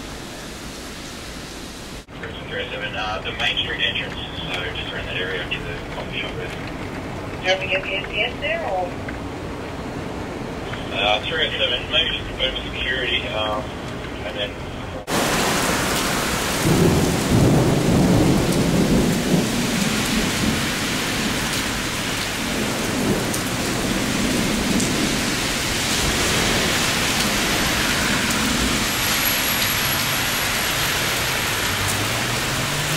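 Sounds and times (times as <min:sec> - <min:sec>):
heavy rain on pavement: 0:00.0 - 0:32.9
low thunder rumble: 0:14.6 - 0:29.0.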